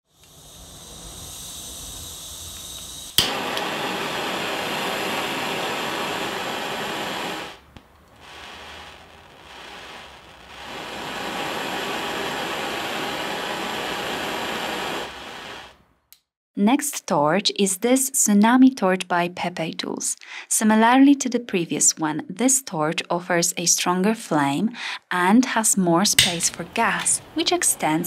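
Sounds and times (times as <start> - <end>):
torch flame hissing: 0.0 - 15.9, 26.1 - 28.0
torch igniter click: 0.1 - 8.3, 26.2 - 27.2.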